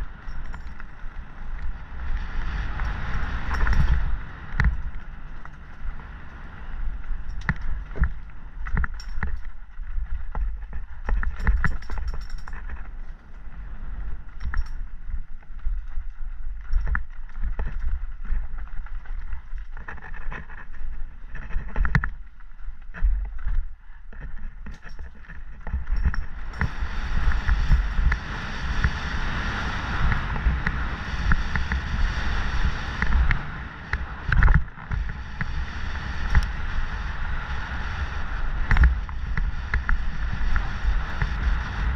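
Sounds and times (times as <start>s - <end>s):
tyres crunching over dirt: 0.0s - 29.0s
bike chain and frame clattering: 0.0s - 37.2s
wind rumbling on microphone: 0.0s - 41.9s
tyres rolling hiss on stony ground: 26.4s - 41.9s.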